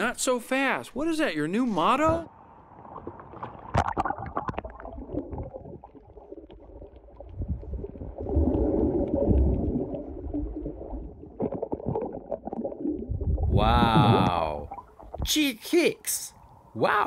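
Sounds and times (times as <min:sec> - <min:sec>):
muffled underwater water gurgling: 0:03.0 - 0:15.3.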